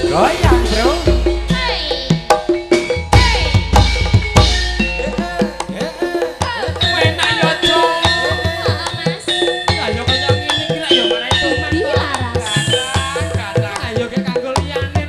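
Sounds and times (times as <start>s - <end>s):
ringing metallophone tones: 0.0s - 15.0s
woman singing through speakers: 1.4s - 2.5s, 3.1s - 3.9s, 5.1s - 14.9s.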